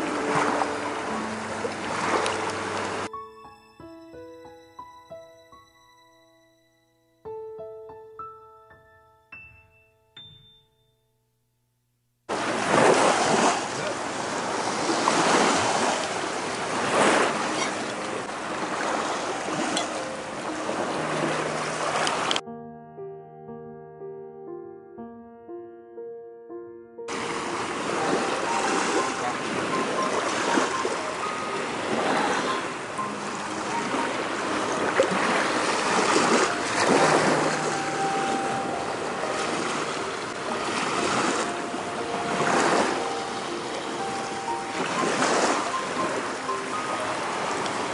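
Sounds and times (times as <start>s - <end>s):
piano music: 0.0s - 11.3s, 12.5s - 47.9s
small waves washing against concrete: 12.3s - 22.4s, 27.1s - 31.0s, 31.6s - 38.4s.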